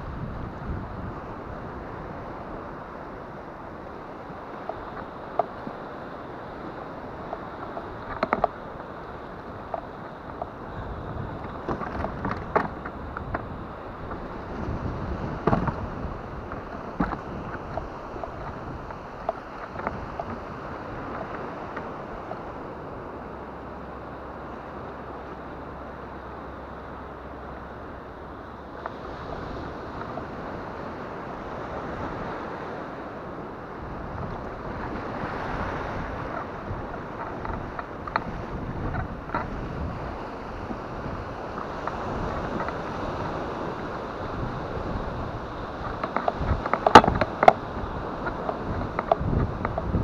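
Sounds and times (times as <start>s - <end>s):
breaking surf: 0.0s - 50.0s
water washing around kayak: 0.0s - 50.0s
wind buffeting microphone: 0.0s - 50.0s.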